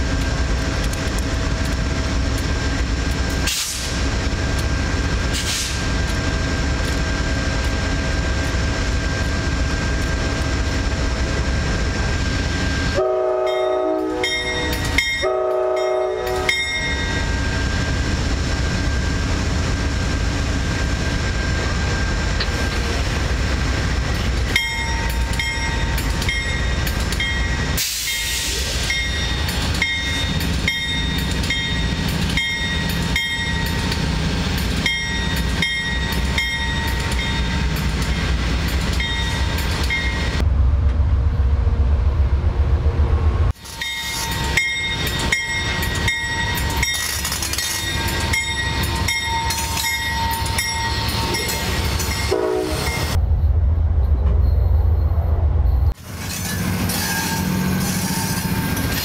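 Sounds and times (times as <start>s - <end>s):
diesel locomotive engine running: 0.0s - 59.0s
locomotive horn blasts: 13.0s - 16.8s, 52.2s - 53.2s.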